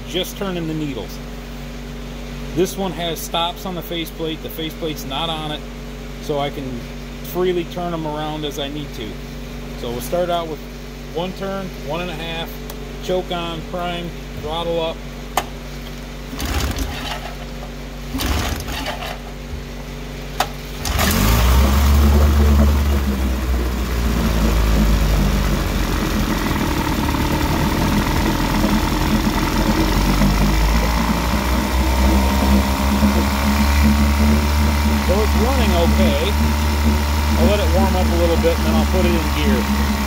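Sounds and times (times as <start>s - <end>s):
outboard motor starting and running: 15.8s - 40.0s.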